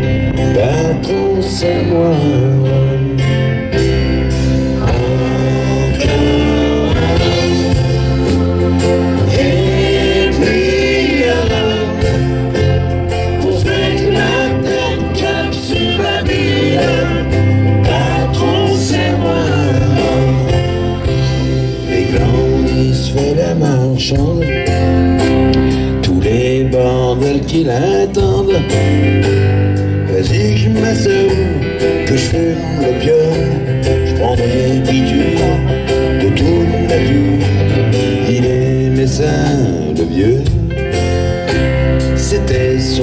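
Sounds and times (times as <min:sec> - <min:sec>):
wavering lead melody: 0:00.0 - 0:23.7
rock band playing live: 0:00.0 - 0:43.0.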